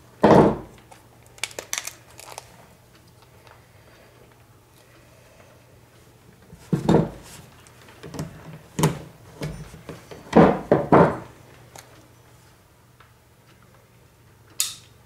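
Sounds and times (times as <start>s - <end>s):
knocks on wooden workbench: 0.2s - 0.7s, 6.7s - 7.2s, 10.3s - 11.2s.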